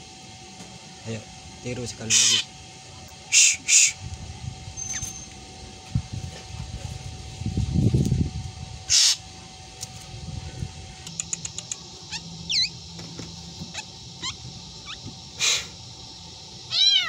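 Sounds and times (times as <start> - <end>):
bird harsh calls: 8.9 - 9.2, 12.0 - 12.8, 13.6 - 15.7
bird clicks: 11.0 - 11.8
meow-like bird call: 12.1 - 12.7, 16.7 - 17.0
downward-swooping bird whistles: 12.1 - 12.8.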